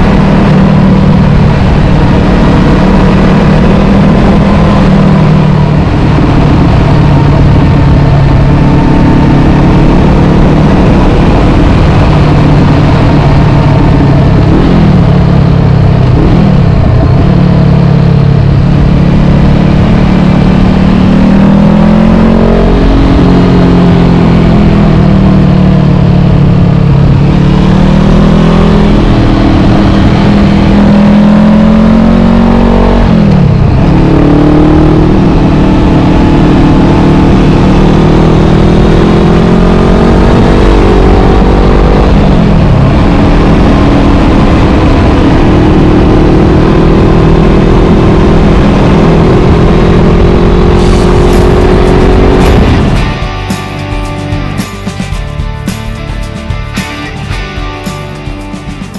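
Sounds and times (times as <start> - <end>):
motorcycle engine running: 0.0 - 58.9
wind noise: 0.0 - 58.9.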